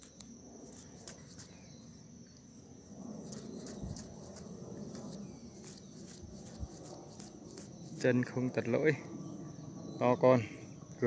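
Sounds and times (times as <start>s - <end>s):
high insect trill: 0.0s - 11.0s.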